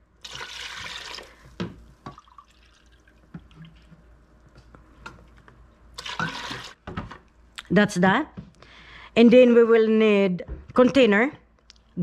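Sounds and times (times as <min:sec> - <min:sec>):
vinegar pouring into water: 0:00.2 - 0:04.3, 0:06.0 - 0:06.8
measuring cup and jug clinking: 0:06.0 - 0:06.7.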